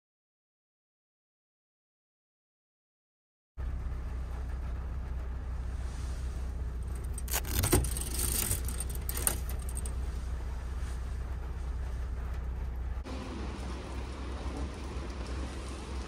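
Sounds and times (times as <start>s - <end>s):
steady low hum: 3.6s - 16.0s
metallic jingling and clicks: 6.8s - 10.0s.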